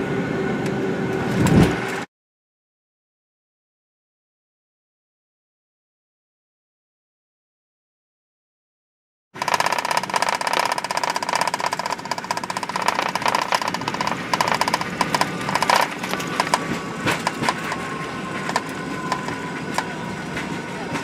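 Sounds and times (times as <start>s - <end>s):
jet engines whining: 0.0s - 2.1s, 11.0s - 21.0s
cabin rattling and clicking: 9.4s - 20.0s.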